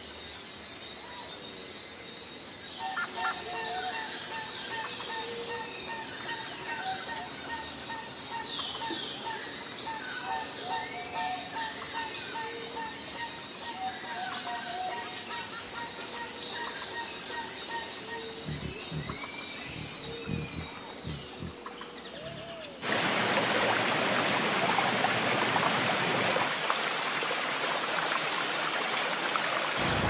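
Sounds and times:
birds chirping: 16.3s - 22.9s.

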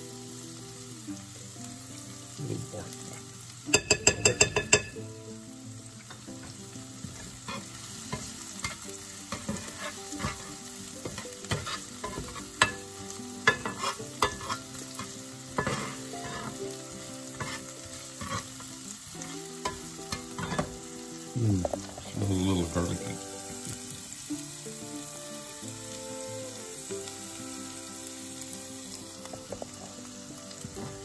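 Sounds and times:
onions sizzling in oil: 0.0s - 31.0s
spatula scraping and knocking pan: 6.4s - 16.7s, 17.3s - 20.9s.

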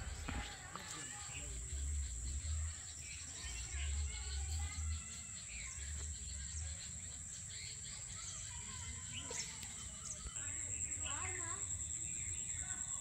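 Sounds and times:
low rumbles: 0.0s - 0.6s
high-pitched insect drone: 0.0s - 7.8s
birds chirping: 0.0s - 13.0s.

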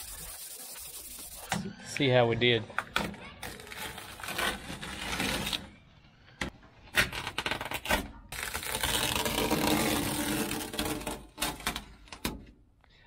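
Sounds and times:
masking tape being peeled: 3.4s - 5.6s, 7.0s - 11.8s.

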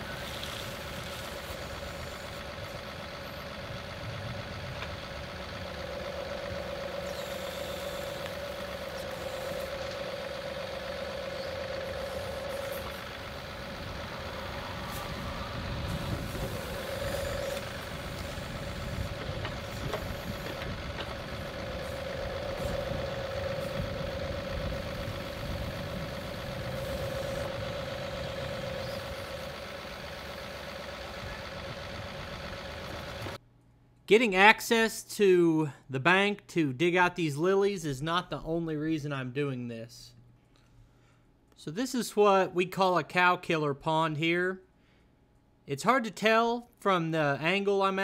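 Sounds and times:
diesel tractor running under load: 0.0s - 33.4s
hydraulic whine: 0.0s - 33.4s.

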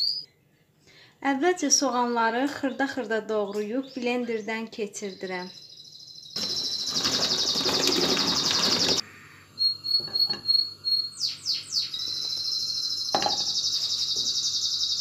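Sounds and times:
bird chirps: 0.0s - 0.3s, 5.0s - 9.0s, 9.6s - 15.0s
pulsing insect trill: 6.2s - 9.0s
knock: 13.2s - 13.5s.

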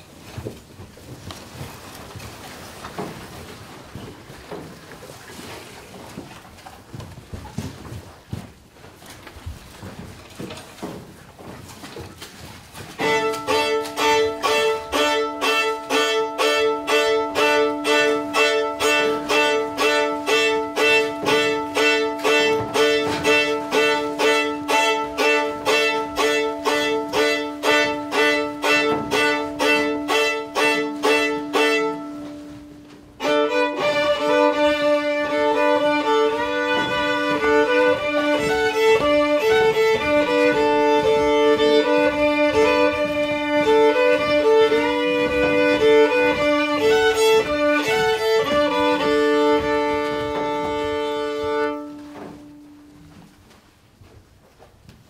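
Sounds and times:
fiddle music over drone: 13.0s - 52.6s.

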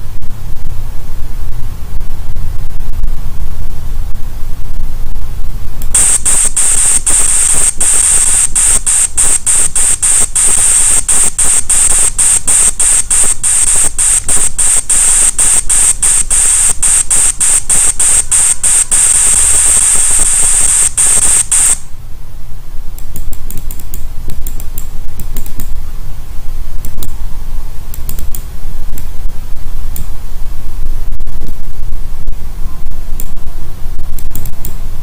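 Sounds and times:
high hiss with fast clicks: 5.8s - 21.9s, 23.0s - 25.8s, 26.8s - 27.2s, 27.9s - 29.1s, 33.2s - 34.8s
faint scattered clicks: 23.0s - 25.8s, 27.9s - 29.1s, 34.2s - 34.8s.

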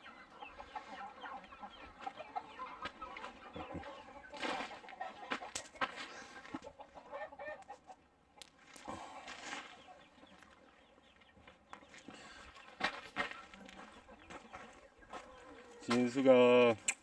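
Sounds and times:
chickens clucking: 0.0s - 17.0s.

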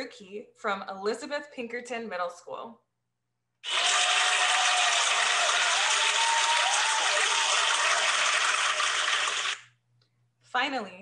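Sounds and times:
crowd applause and cheering: 3.6s - 9.6s
voices whooping: 3.7s - 8.6s.

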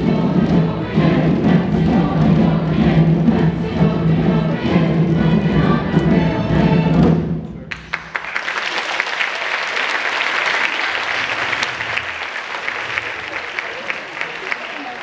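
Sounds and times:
string and drum ensemble chord: 0.0s - 8.0s
audience applause: 7.7s - 15.0s.

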